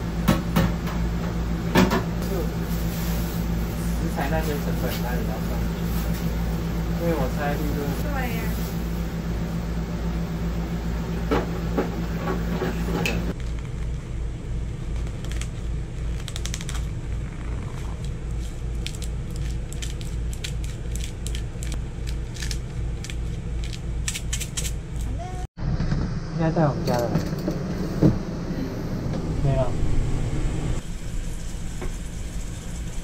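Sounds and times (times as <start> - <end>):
steady low hum: 0.0 - 33.0
plastic packaging crinkling: 14.8 - 24.7.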